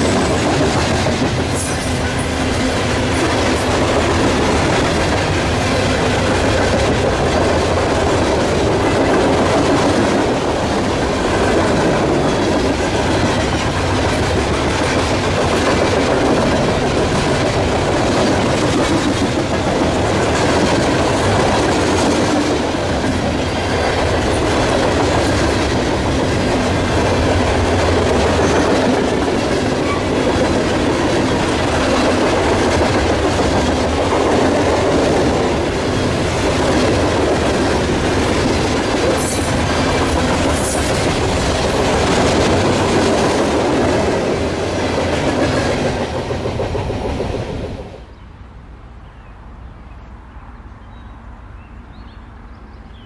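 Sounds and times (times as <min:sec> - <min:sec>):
train wheels on rails: 0:00.0 - 0:50.2.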